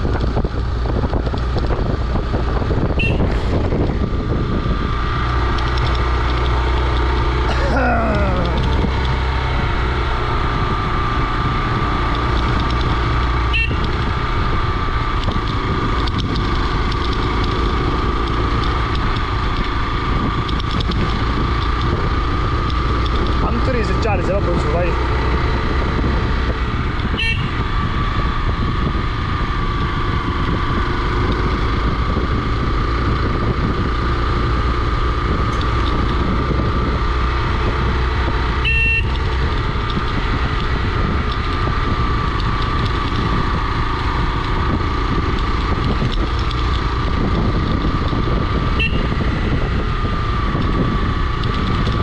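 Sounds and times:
motorcycle engine running: 0.0s - 52.0s
wind rumble on microphone: 0.0s - 52.0s
sharp ticks: 5.3s - 9.2s, 12.0s - 14.2s, 15.1s - 25.4s, 33.9s - 49.3s, 49.9s - 52.0s.

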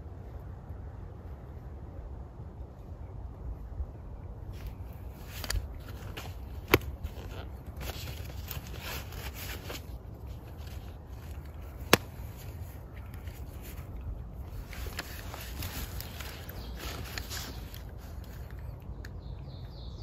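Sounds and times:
rustling in dry leaves: 4.4s - 19.0s.

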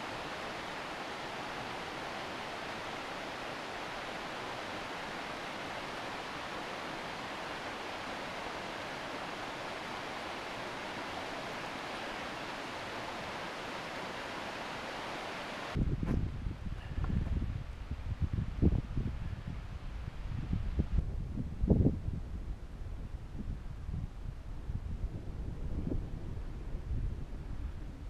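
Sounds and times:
river water rushing over rapids: 0.0s - 15.8s.

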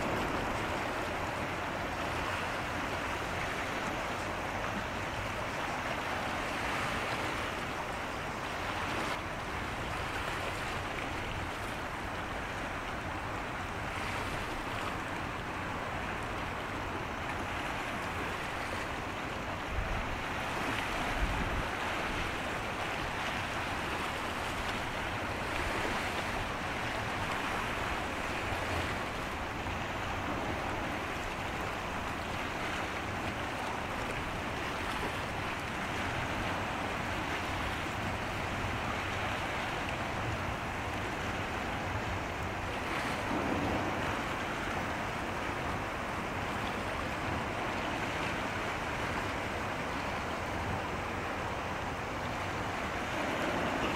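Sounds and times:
wind gusts buffeting microphone: 0.0s - 8.0s, 19.4s - 53.9s
sea water rushing: 0.0s - 53.9s.

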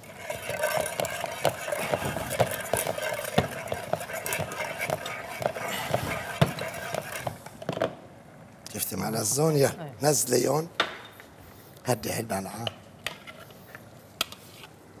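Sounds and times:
food mill grinding: 0.0s - 7.4s.

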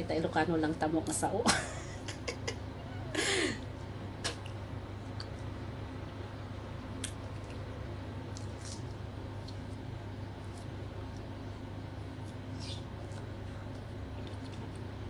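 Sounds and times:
steady low hum: 0.0s - 15.0s
fingers tearing fruit membrane: 6.9s - 15.0s.

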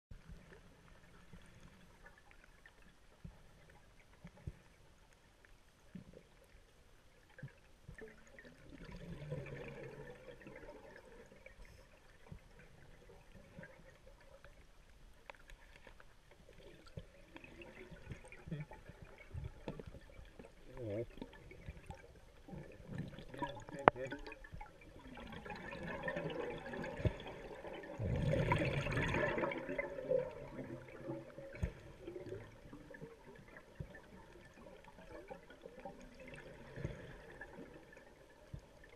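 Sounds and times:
small underwater clicks: 0.1s - 38.9s
scuba regulator exhaust bubbles: 7.9s - 14.0s, 16.8s - 38.9s.

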